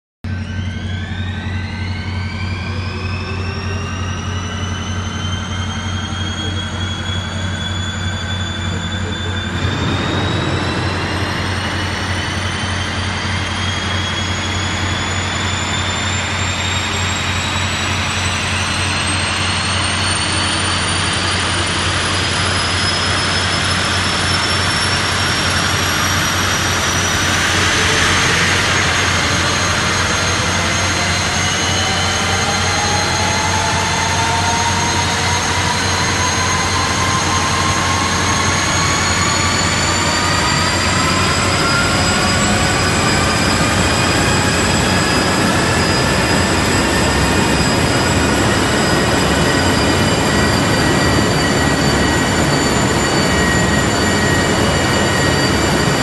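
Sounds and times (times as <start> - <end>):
helicopter turbine whine: 0.3 - 56.0
steady low hum: 0.4 - 19.0.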